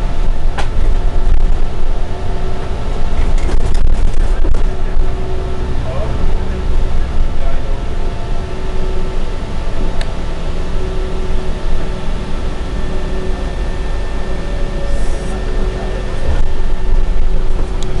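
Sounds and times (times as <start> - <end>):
bus engine and road rumble: 0.0 - 18.0
faint whining tones: 0.0 - 18.0.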